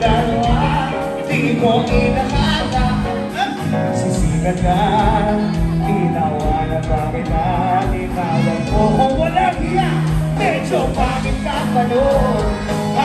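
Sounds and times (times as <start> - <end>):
drum beat: 0.0 - 13.0
electric guitar: 0.0 - 13.0
person singing: 0.0 - 13.0.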